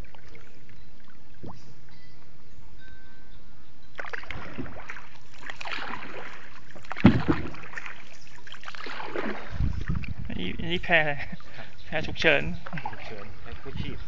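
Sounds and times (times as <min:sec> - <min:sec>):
paddle strokes splashing water: 0:00.0 - 0:01.6, 0:04.0 - 0:10.3, 0:10.9 - 0:14.0
sharp thump: 0:07.0 - 0:07.6.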